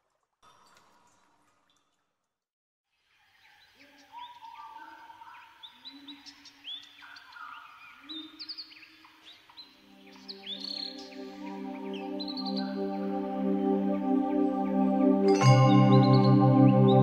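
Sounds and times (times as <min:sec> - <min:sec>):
held synth notes: 0:09.8 - 0:17.0.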